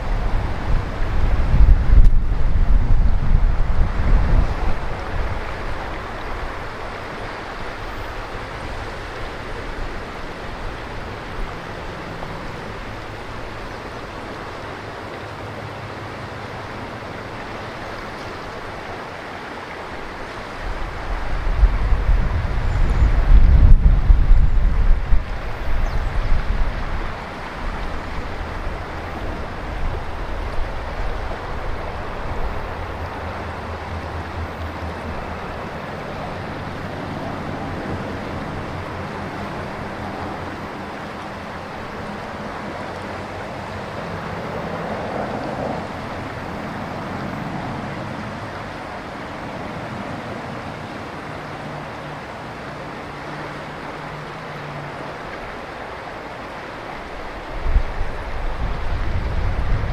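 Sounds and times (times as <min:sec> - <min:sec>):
wind buffeting microphone: 0:00.0 - 0:13.7, 0:20.1 - 0:51.2, 0:57.0 - 0:59.9
river water flowing: 0:00.0 - 0:59.9.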